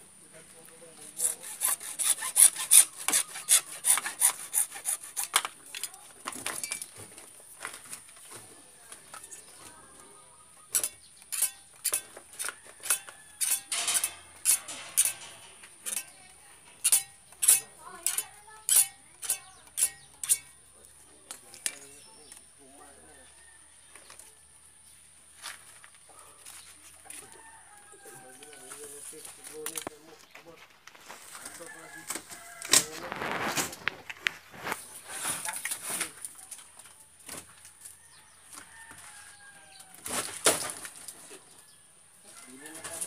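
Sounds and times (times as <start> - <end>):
hacksaw cutting plastic pipe: 1.0 - 6.0, 10.7 - 20.6.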